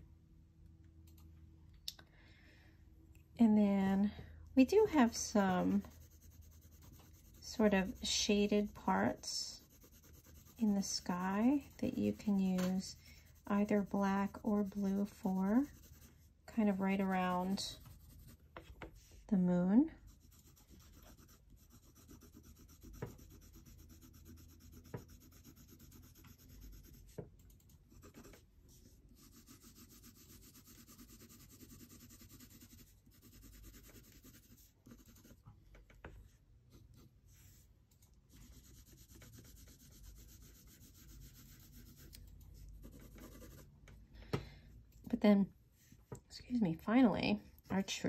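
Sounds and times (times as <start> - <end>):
pencil scratching on paper: 4.7 - 19.1, 20.0 - 27.2, 27.9 - 35.4, 38.3 - 43.7.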